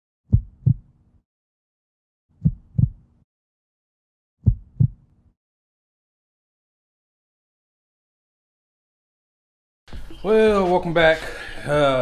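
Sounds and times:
heartbeat thumps: 0.3s - 0.9s, 2.4s - 3.1s, 4.4s - 5.1s.

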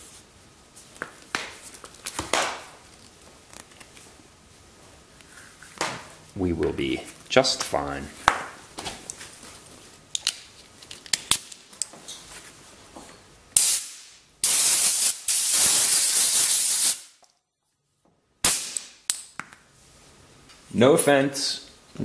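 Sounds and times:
compressed air blow gun hissing: 13.6s - 17.0s.

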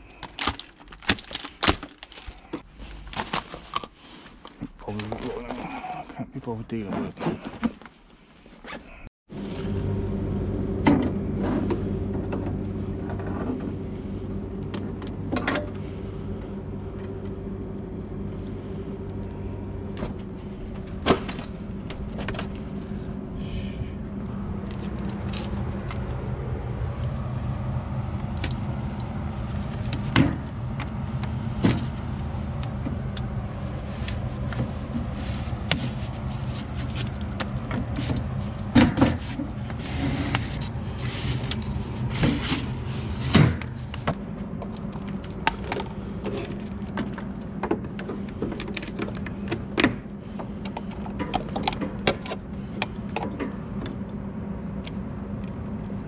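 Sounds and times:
motor humming: 9.3s - 54.2s.

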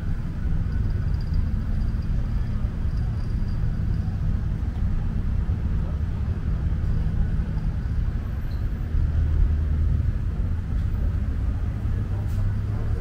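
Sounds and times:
road traffic rumble: 0.0s - 13.0s
vehicle engine running: 0.0s - 13.0s.

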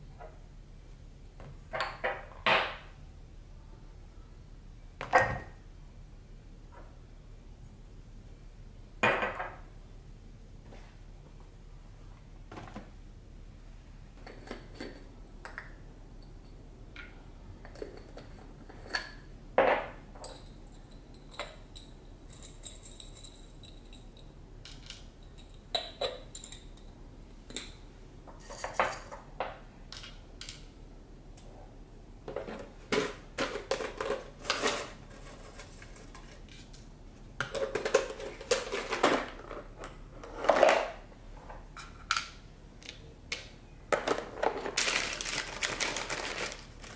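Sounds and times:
jars clicking and knocking: 37.4s - 39.7s.

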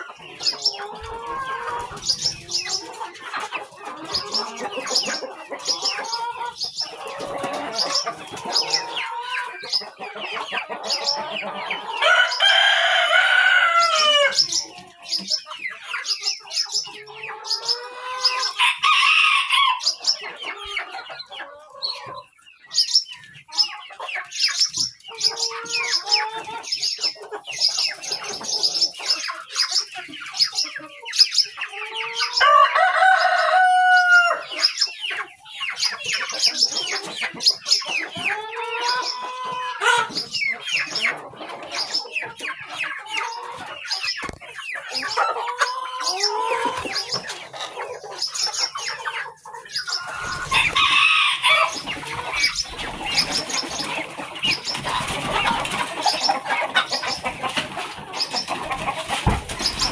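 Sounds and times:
chickens clucking: 0.0s - 59.9s
rooster crowing: 11.9s - 14.4s, 18.2s - 19.9s, 32.3s - 34.5s, 50.2s - 52.0s.

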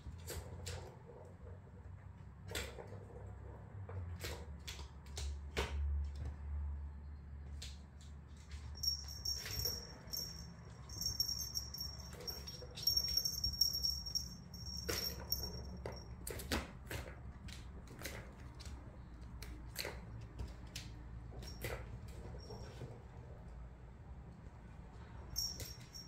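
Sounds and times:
toys clicking and tapping on floor: 0.1s - 6.4s, 7.4s - 23.0s, 25.3s - 26.0s
small toy bell jingling: 8.6s - 16.2s, 25.3s - 26.0s.

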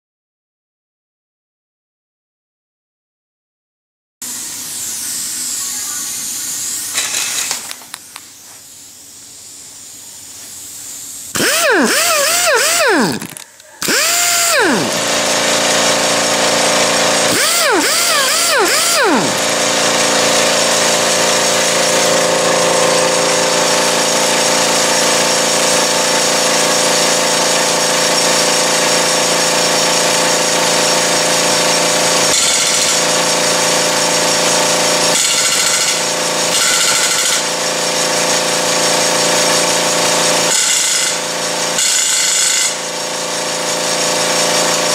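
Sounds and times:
pneumatic tool air motor bursts: 4.3s - 44.9s
loud steady machine tones: 11.3s - 44.9s.

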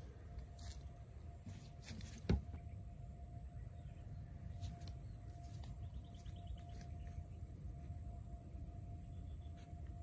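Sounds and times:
low outdoor rumble: 0.0s - 10.0s
bird chirps: 5.8s - 7.5s.

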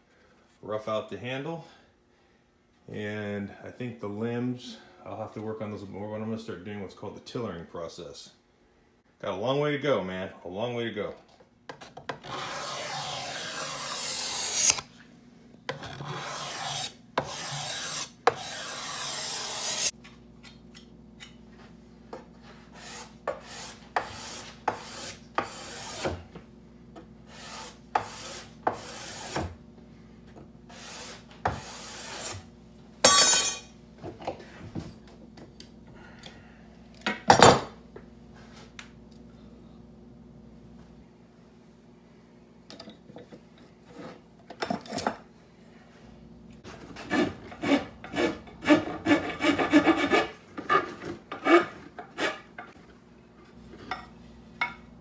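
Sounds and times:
filing strokes: 12.2s - 14.8s, 15.8s - 19.9s, 22.7s - 26.2s, 27.3s - 29.5s, 30.7s - 32.4s, 46.7s - 52.4s
hand tool rasping wood: 12.3s - 14.8s, 15.9s - 19.9s, 22.8s - 26.1s, 27.3s - 29.4s, 46.7s - 52.5s.

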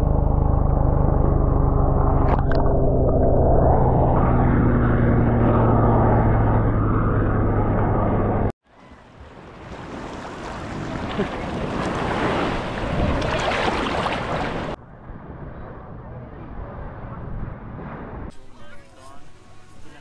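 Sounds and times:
steady low hum: 0.0s - 8.5s
waves lapping and splashing: 8.7s - 14.8s
dogs swimming splashes: 9.0s - 14.8s.

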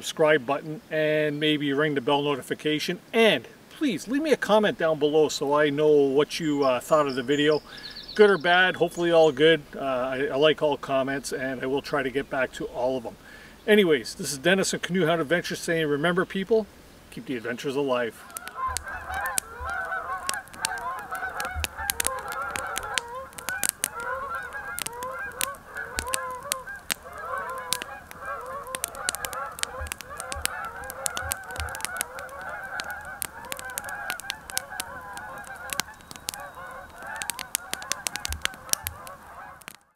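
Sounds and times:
geese honking: 18.0s - 39.9s
sharp clicks: 18.2s - 39.9s.

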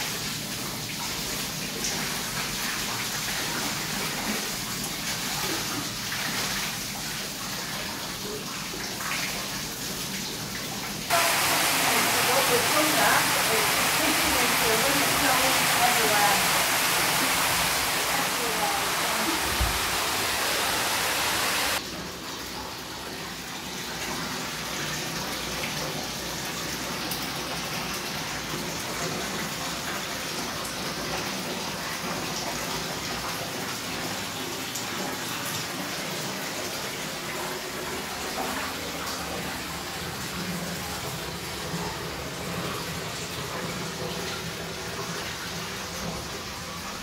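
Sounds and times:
water running and splashing: 0.0s - 47.0s
floodwater rushing: 11.1s - 21.8s.

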